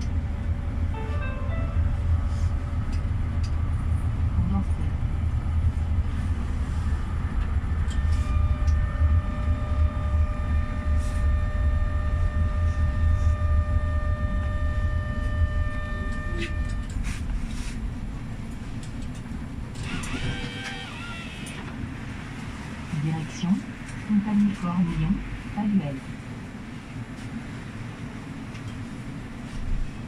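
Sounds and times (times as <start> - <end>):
multi-tone hum: 0.0 - 30.0
tram rumbling on track: 0.0 - 30.0.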